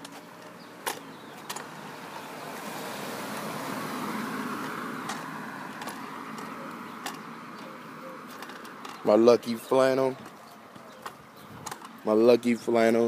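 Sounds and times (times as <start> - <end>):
car passing: 0.0 - 12.4.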